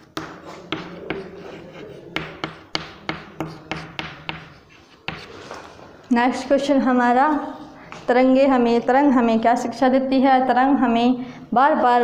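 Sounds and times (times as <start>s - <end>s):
chalk tapping on chalkboard: 0.0s - 5.3s
chalk scraping on board: 0.2s - 5.6s.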